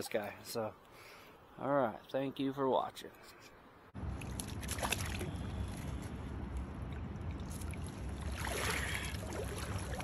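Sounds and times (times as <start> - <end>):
fish splashing out of water: 4.1 - 6.1, 7.4 - 10.0.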